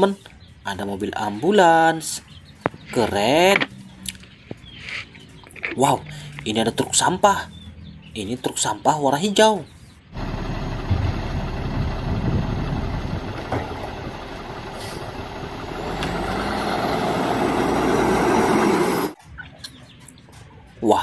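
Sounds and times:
garbage truck diesel engine: 9.8s - 19.2s
side-loader lifting cart: 9.8s - 19.9s.

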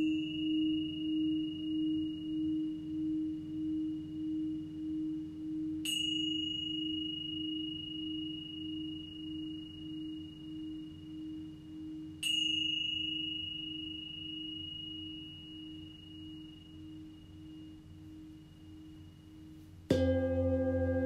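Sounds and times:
high singing bowl ping: 0.0s - 21.0s
low singing bowl humming: 0.0s - 21.0s.

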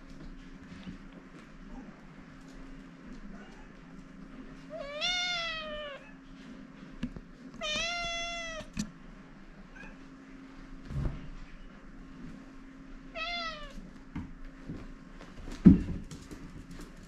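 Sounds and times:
cat meowing: 4.7s - 6.2s, 7.6s - 8.7s, 13.1s - 13.8s.

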